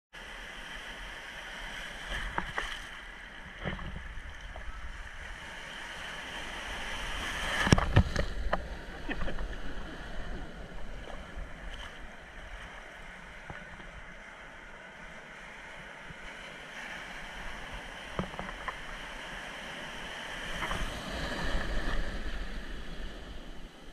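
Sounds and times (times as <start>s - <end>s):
surf washing and splashing: 0.2s - 23.9s
wave breaking: 1.6s - 14.2s.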